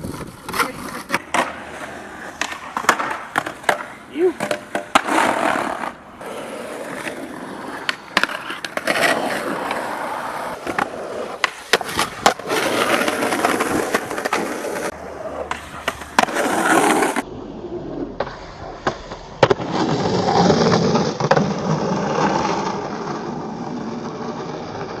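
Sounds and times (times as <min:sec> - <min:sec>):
skateboard pops and clacks: 0:00.0 - 0:06.0, 0:07.0 - 0:09.8, 0:10.5 - 0:14.7, 0:15.4 - 0:17.2, 0:18.2 - 0:21.9
skateboard wheels rolling on concrete: 0:00.0 - 0:25.0.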